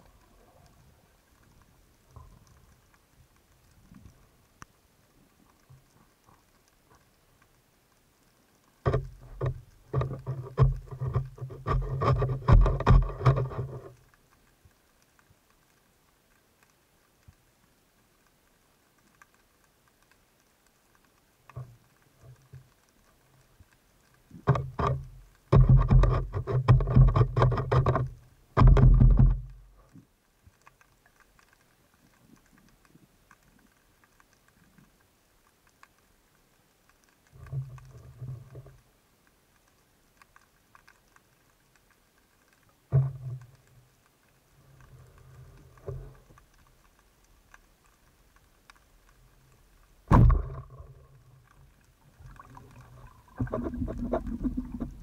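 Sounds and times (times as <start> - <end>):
low rapid underwater rattling: 0.0 - 55.0.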